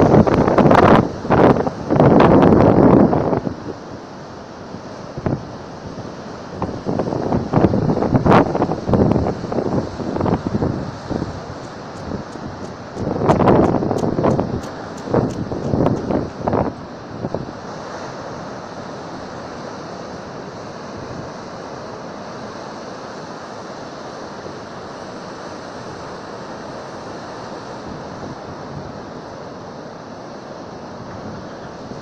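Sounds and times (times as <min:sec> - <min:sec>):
wind buffeting microphone: 0:00.0 - 0:03.8, 0:06.5 - 0:17.6
waves breaking on beach: 0:00.0 - 0:32.0.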